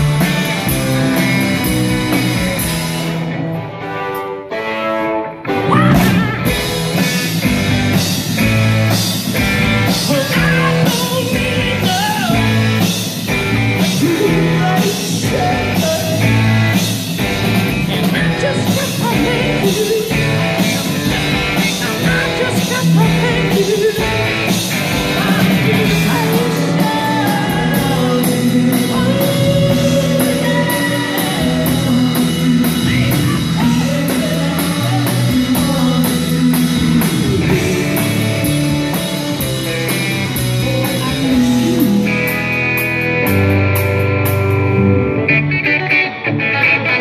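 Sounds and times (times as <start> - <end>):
live rock band playing: 0.0 - 47.0
man singing into microphone: 9.9 - 12.7, 13.8 - 16.4, 17.8 - 20.6, 21.6 - 24.4, 25.0 - 38.5, 40.5 - 42.2.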